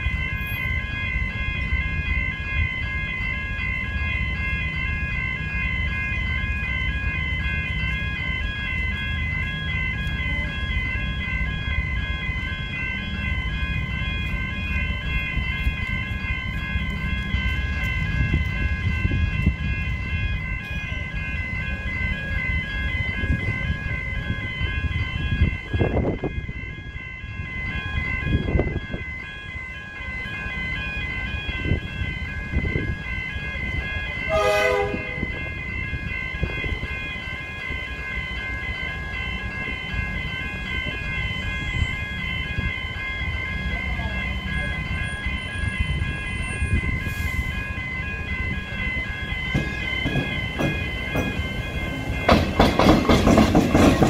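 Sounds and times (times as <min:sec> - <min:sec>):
electric train rumble: 0:00.0 - 0:54.0
level crossing warning bells: 0:00.0 - 0:54.0
train horn blast: 0:34.2 - 0:35.6.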